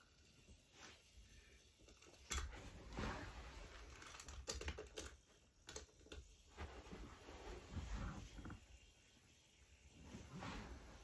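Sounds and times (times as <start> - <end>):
toy train clicks and knocks: 1.8 - 2.5, 3.8 - 6.3.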